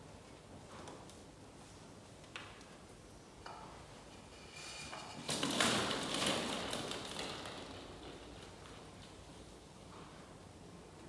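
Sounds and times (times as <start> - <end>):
plastic balls clattering: 5.0 - 8.9.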